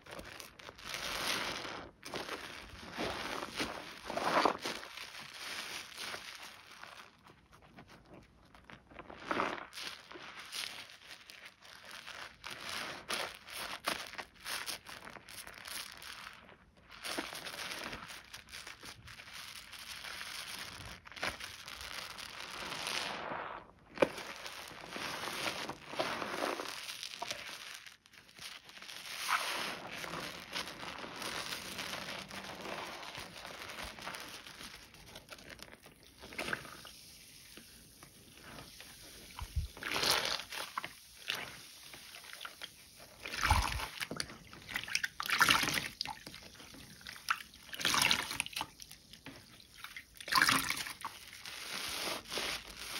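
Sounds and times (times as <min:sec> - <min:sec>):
soap lathering wet squishing: 0:29.2 - 0:52.9.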